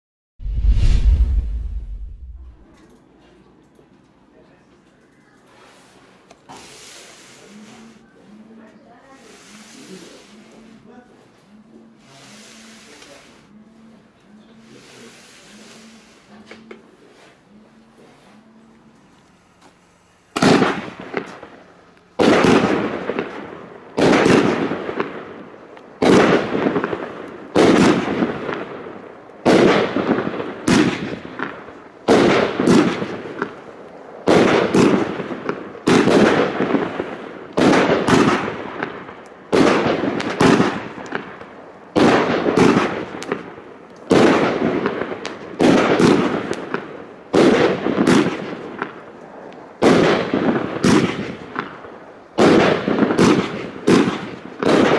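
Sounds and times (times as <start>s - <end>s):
firework shots banging and hissing: 5.6s - 8.0s, 9.1s - 10.9s, 12.0s - 13.5s, 14.7s - 17.4s, 19.7s - 54.9s.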